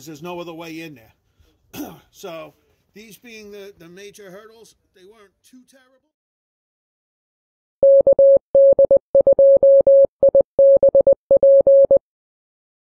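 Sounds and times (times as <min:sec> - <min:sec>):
morse code beeps: 0:07.8 - 0:12.0.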